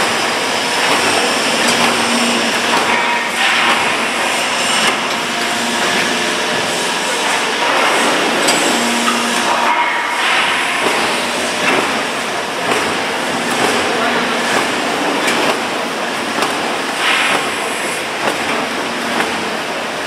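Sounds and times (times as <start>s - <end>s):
machine line mechanical din: 0.0s - 20.0s.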